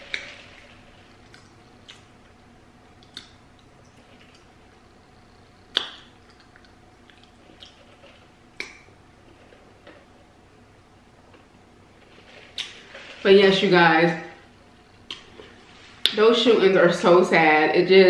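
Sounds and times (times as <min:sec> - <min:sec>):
mouth clicks: 0:03.0 - 0:03.7, 0:05.6 - 0:07.8, 0:08.6 - 0:08.9
swallowing: 0:05.7 - 0:08.9.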